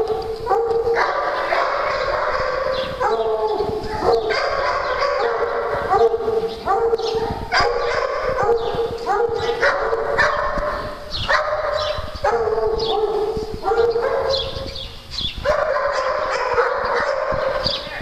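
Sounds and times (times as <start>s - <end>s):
dog barking: 0.0s - 14.8s, 15.4s - 18.0s.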